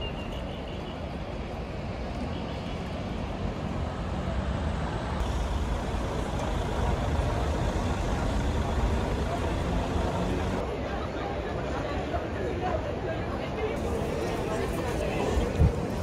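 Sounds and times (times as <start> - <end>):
murmur of large crowd: 3.4 - 16.0.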